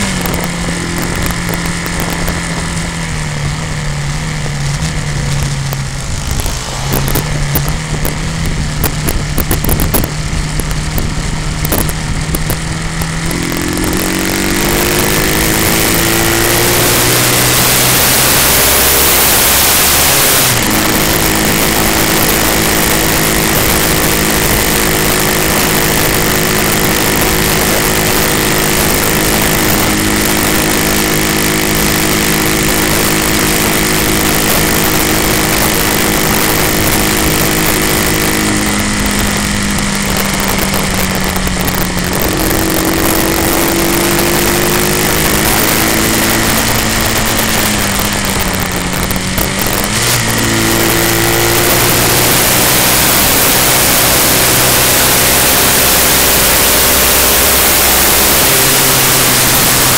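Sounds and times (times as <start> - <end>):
motorcycle engine running: 0.0 - 59.9
wind on microphone: 0.0 - 59.9.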